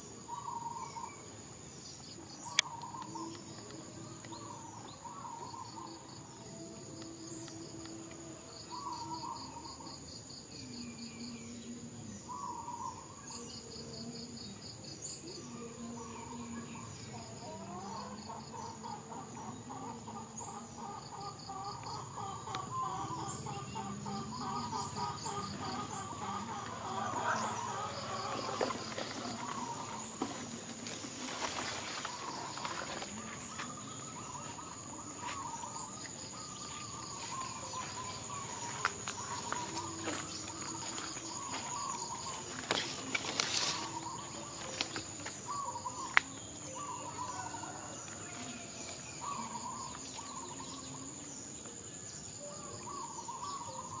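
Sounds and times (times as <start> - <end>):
frogs calling: 0.0 - 54.0
insects droning and trilling: 0.0 - 54.0
grass rustling: 26.2 - 47.3.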